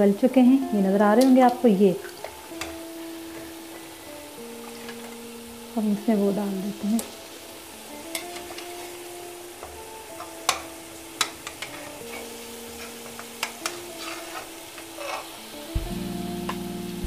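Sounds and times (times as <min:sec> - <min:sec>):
oil sizzling in a pot: 0:00.0 - 0:17.0
utensils knocking against pot: 0:09.6 - 0:14.4.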